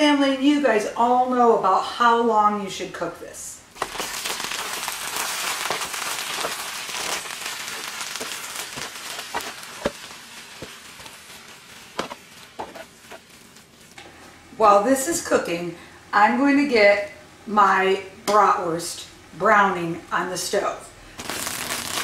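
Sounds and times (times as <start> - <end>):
food sizzling in a skillet: 3.8 - 14.0, 21.2 - 22.0.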